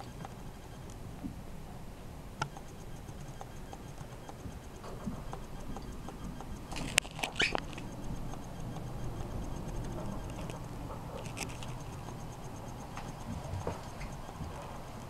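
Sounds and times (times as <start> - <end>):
sharp click: 2.4 - 14.6
light ticks: 2.4 - 15.0
pitch-sliding squeak: 2.6 - 14.7
camera handling rumble: 5.4 - 8.5, 11.2 - 12.1.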